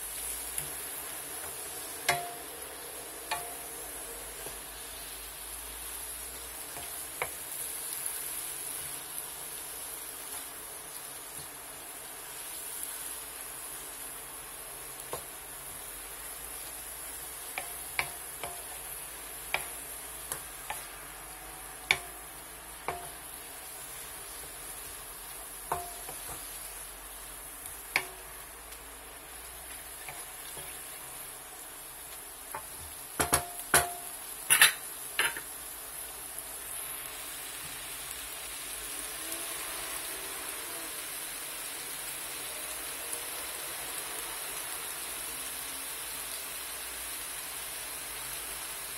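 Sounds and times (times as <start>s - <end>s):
vegetables sizzling in a wok: 0.0s - 48.9s
wooden spatula knocking on pan: 1.4s - 2.5s, 17.5s - 18.8s, 21.8s - 22.2s, 22.8s - 23.2s, 25.7s - 26.5s, 32.5s - 34.1s.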